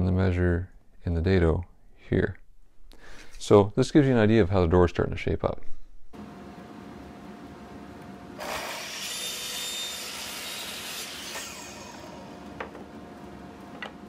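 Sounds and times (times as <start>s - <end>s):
saw blade cutting wood: 8.4s - 12.4s
saw motor hum: 8.4s - 14.0s.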